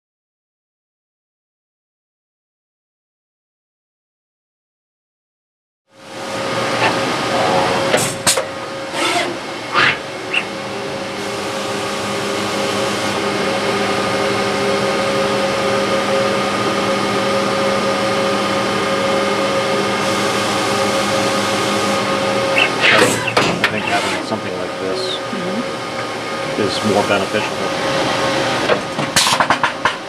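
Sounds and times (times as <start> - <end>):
printer mechanical hum: 6.0 - 30.0.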